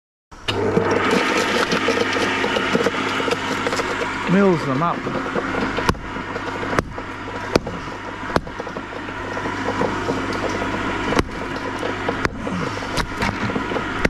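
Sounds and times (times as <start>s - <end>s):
garden shredder motor hum: 0.4s - 14.0s
hatchet chopping on wooden stump: 6.7s - 8.6s.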